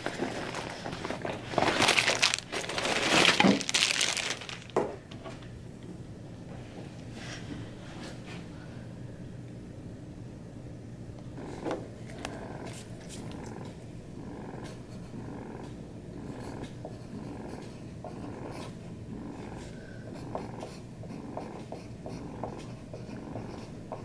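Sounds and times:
breast pump humming: 0:11.1 - 0:24.0.

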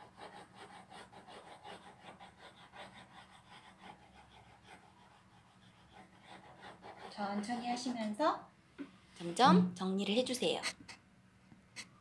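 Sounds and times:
pencil hatching on paper: 0:00.0 - 0:08.2.

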